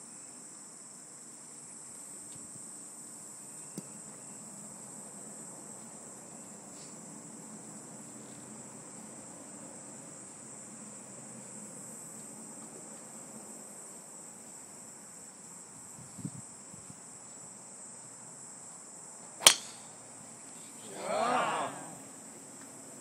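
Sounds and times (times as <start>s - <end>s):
high buzz of insects: 0.0s - 23.0s
golf club striking ball: 19.4s - 19.9s.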